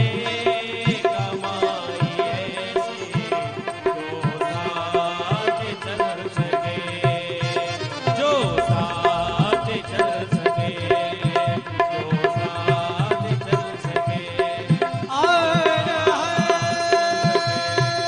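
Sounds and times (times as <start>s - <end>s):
tabla beat: 0.0s - 18.0s
sustained melodic accompaniment: 7.0s - 12.2s.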